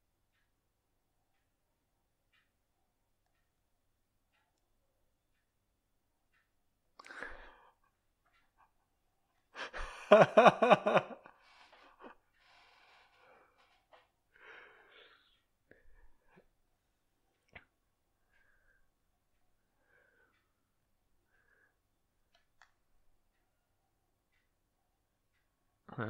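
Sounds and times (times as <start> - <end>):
breath: 7.0 - 7.9, 11.4 - 16.4, 18.3 - 18.8, 19.8 - 20.5, 21.3 - 21.8
person laughing: 9.6 - 11.3.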